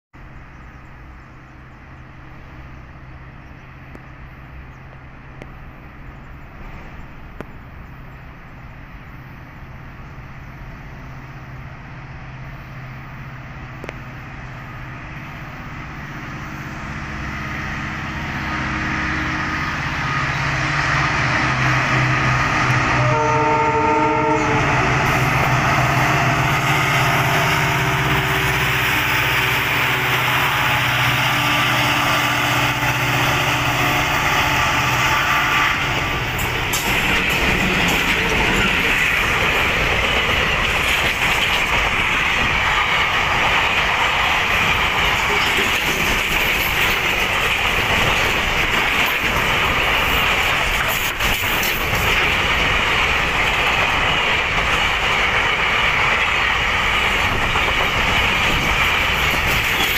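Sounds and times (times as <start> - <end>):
diesel locomotive engine drone: 0.2 - 59.9
train wheels rumbling: 0.2 - 59.9
train horn blast: 22.8 - 25.4.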